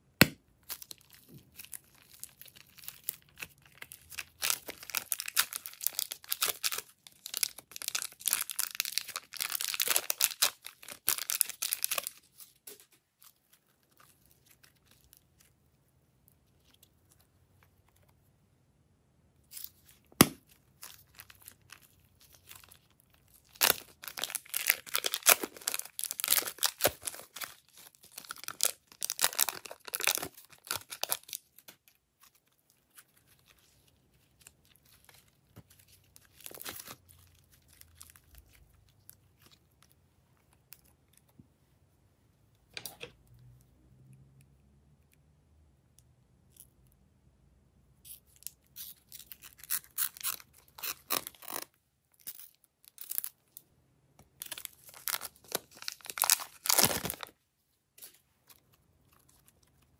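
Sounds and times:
slime crackling and tearing: 0.2 - 15.6, 19.5 - 40.0, 48.1 - 53.4, 54.4 - 57.3
plastic bags crinkling: 0.8 - 12.8, 20.8 - 38.7, 54.4 - 57.3.

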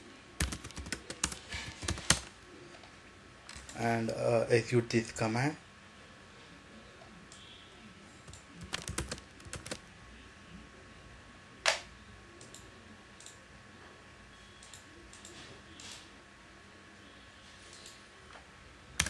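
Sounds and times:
keyboard keys clicking: 0.4 - 2.3, 8.3 - 9.8.

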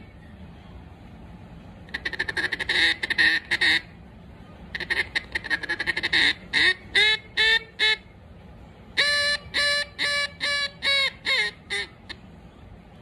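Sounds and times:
duck call quacks: 1.9 - 3.9, 4.7 - 8.0, 9.0 - 12.2
duck call chatter: 1.9 - 4.0, 4.7 - 8.1, 9.0 - 12.2.

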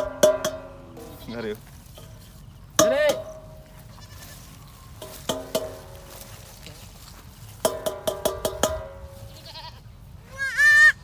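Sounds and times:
goat bleating: 3.8 - 4.6, 9.2 - 11.0.

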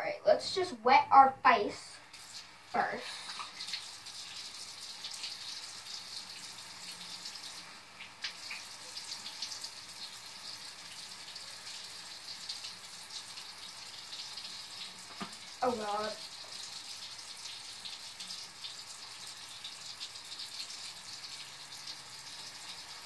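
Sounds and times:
water splashing: 2.1 - 9.9
faucet running into sink: 2.1 - 23.0.

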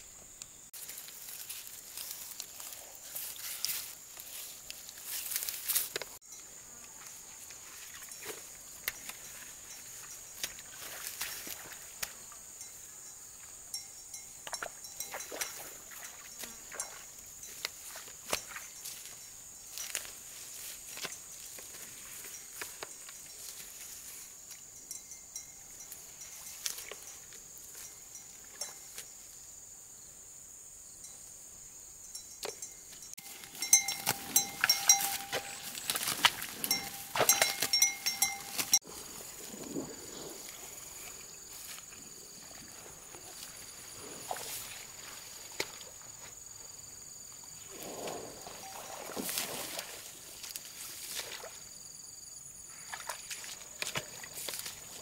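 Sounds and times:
footsteps crunching through dry stubble: 0.8 - 6.2, 17.4 - 24.3, 33.2 - 45.9.

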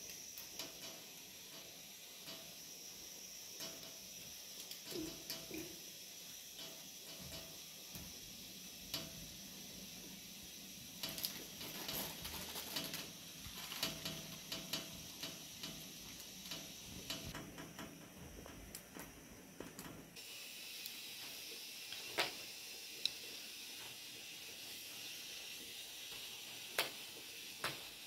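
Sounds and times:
small clicks and taps: 0.0 - 2.6, 11.0 - 20.0
faint steady hiss: 0.0 - 28.0.

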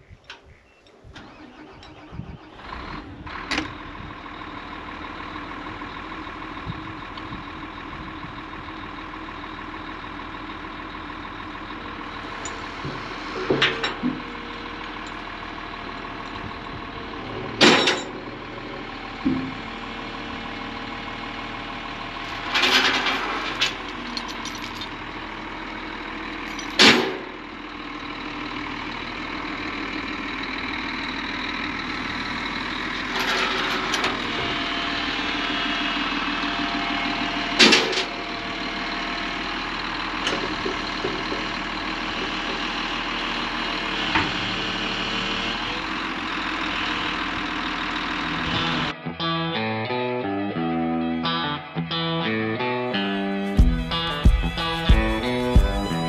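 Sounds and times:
excavator diesel engine running: 0.0 - 56.0
loud clanks and knocks: 17.3 - 18.3, 26.5 - 27.3, 37.6 - 38.1, 40.2 - 42.8.

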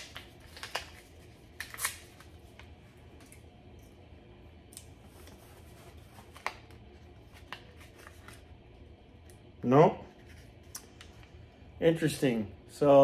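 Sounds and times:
package clicks and rustles: 0.0 - 2.3.

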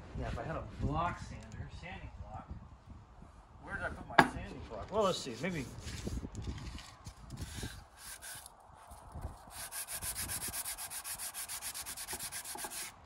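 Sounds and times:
sandpaper rubbing on wood: 5.2 - 6.2, 7.4 - 8.5, 9.5 - 13.0.

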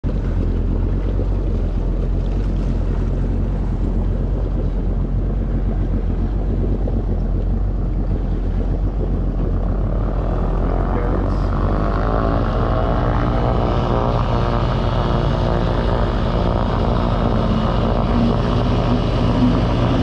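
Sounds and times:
jet ski engine droning: 0.0 - 20.0
wind noise on microphone: 0.0 - 20.0.

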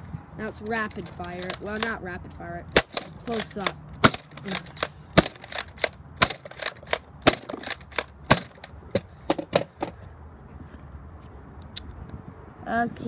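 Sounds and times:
toy dart blaster firing: 2.7 - 8.7.

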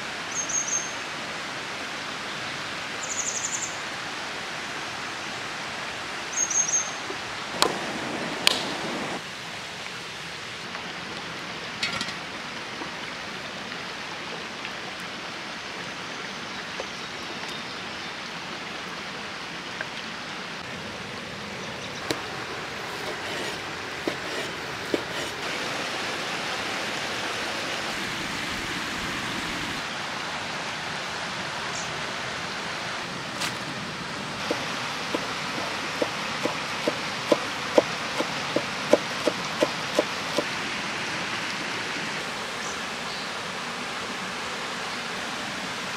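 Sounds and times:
stream flowing over rocks: 0.0 - 45.9
utensils knocking and clicking: 23.0 - 25.4.

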